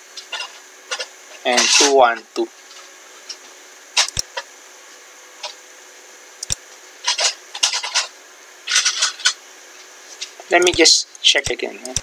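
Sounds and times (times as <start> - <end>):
computer mouse clicking: 4.0 - 4.3, 6.4 - 6.6.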